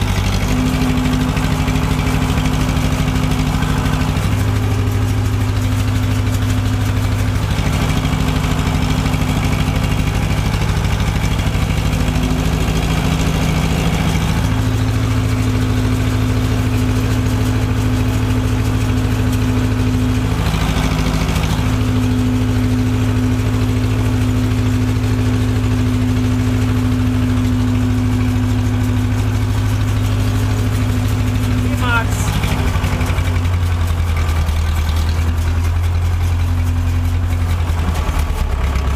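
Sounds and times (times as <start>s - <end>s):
tractor engine running: 0.0s - 38.9s.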